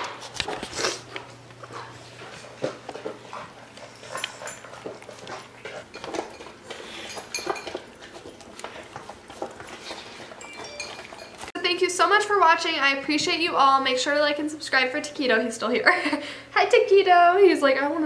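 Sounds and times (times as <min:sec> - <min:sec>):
dogs chewing and crunching kibble: 0:00.0 - 0:13.4
clinks against bowls: 0:05.8 - 0:08.0, 0:10.3 - 0:11.5.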